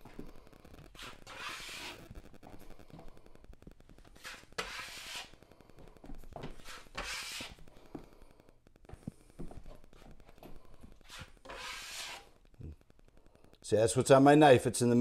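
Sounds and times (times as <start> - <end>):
taping knife scraping drywall: 0.9 - 2.1, 4.2 - 5.4, 6.6 - 7.6, 11.0 - 12.4.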